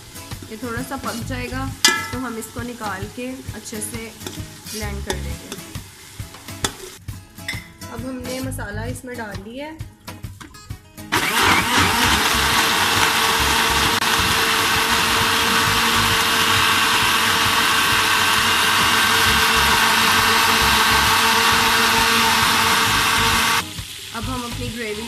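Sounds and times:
electric blender running: 11.1 - 23.6.

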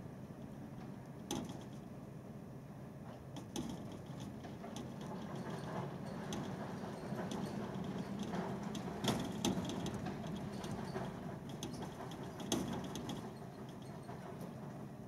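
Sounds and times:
small ticks and rattles: 3.4 - 14.8.

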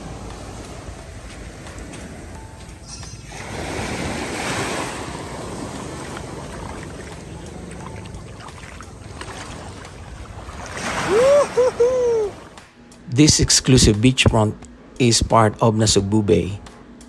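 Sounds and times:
sea waves washing onto beach: 0.0 - 12.7.

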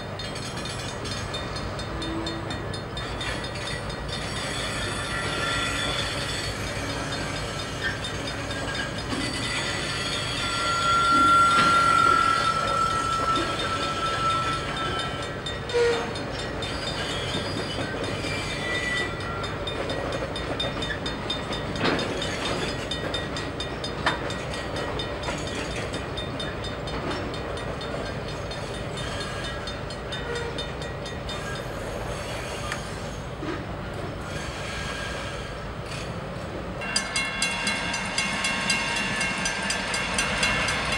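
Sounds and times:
train rumbling past: 0.0 - 40.9
high wheel squeal: 1.2 - 19.8, 28.3 - 33.6, 34.2 - 36.2.

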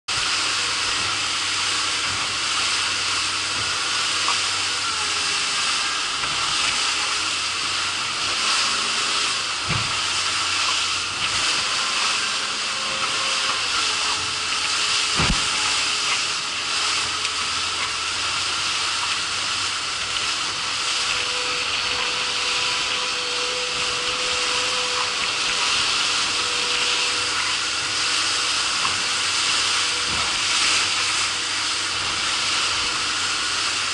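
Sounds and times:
outboard motor running: 0.1 - 33.9
wake spray and wind rushing: 0.1 - 33.9.

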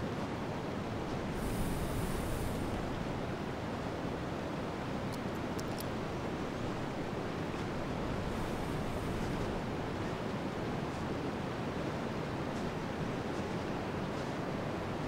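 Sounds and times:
steady wind blowing: 0.0 - 15.0
faint high clicks: 5.1 - 6.0.

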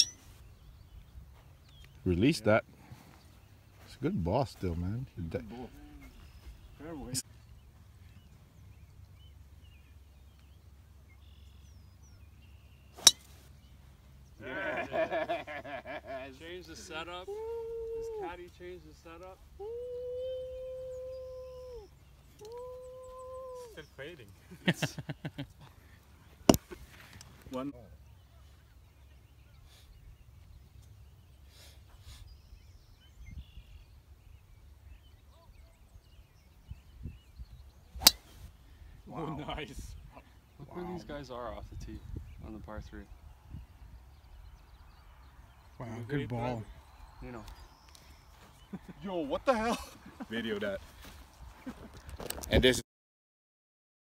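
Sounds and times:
golf club striking ball: 0.0 - 0.3, 13.0 - 13.4, 38.0 - 38.3
birds chirping faintly: 0.0 - 52.8
faint bird chirps: 5.4 - 14.4, 27.6 - 39.0
wind rumble on microphone: 32.5 - 34.0, 35.5 - 39.0, 41.6 - 45.0.

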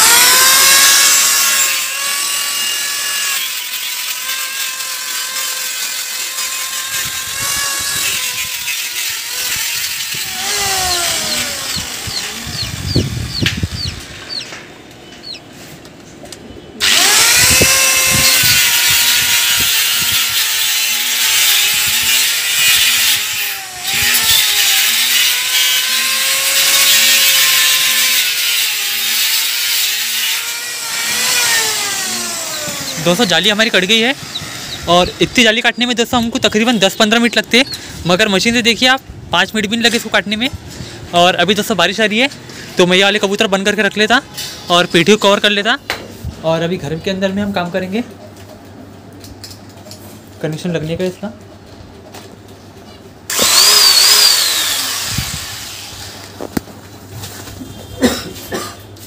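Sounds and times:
electric cutter motor whine: 0.0 - 14.5, 16.8 - 35.6, 53.3 - 56.6.

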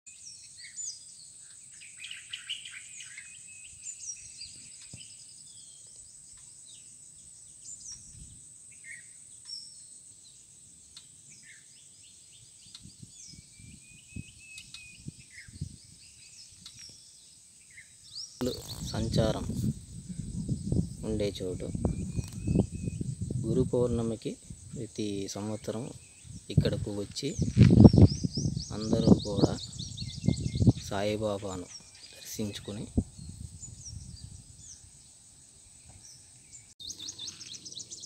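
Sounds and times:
birds chirping and whistling: 0.2 - 9.9, 11.3 - 38.0
high-pitched insect drone: 18.4 - 21.0.

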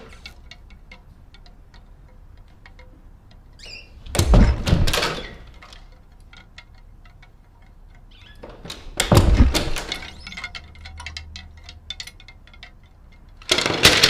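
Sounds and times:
closet door banging: 4.1 - 5.4, 8.6 - 10.2.

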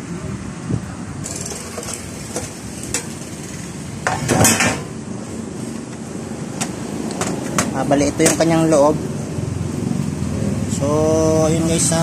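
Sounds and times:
sheet metal cover clicking and clinking: 4.0 - 4.9
metal cover clattering: 4.0 - 5.0.

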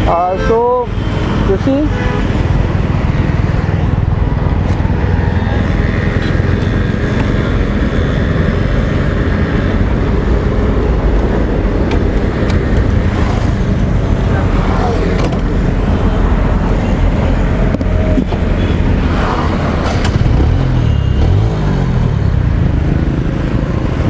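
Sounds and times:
motor vehicles rumbling: 0.0 - 24.0
road traffic noise: 0.0 - 24.0.

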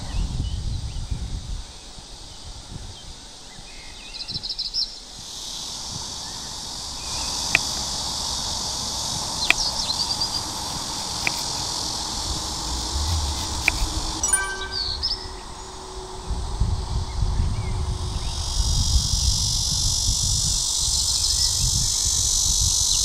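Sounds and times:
insect hiss: 0.0 - 23.0
bird chirps: 14.2 - 15.7.

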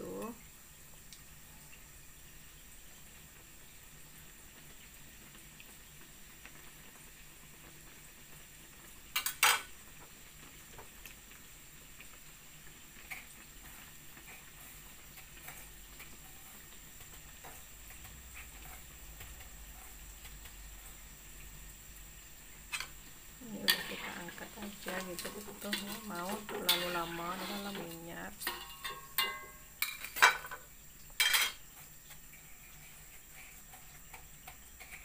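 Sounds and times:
oil sizzling in a wok: 0.0 - 35.0
oil popping and crackling: 0.1 - 35.0
metal utensil clattering on wok: 9.2 - 9.7, 23.6 - 30.6, 31.2 - 31.6.

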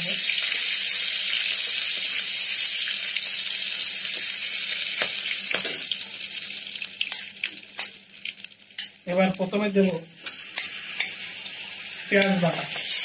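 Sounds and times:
spices sizzling in hot oil: 0.0 - 13.0
spatula tapping a pan: 5.0 - 5.8.

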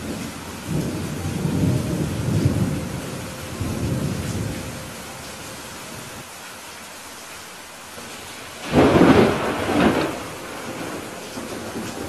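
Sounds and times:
rumble of thunder: 0.0 - 5.0, 8.1 - 12.0
steady rain: 0.0 - 12.0.

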